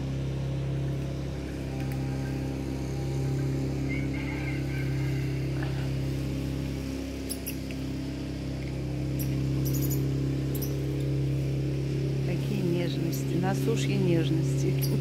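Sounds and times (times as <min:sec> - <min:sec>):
low mechanical hum: 0:00.0 - 0:15.0
short high squeaks: 0:07.2 - 0:07.7.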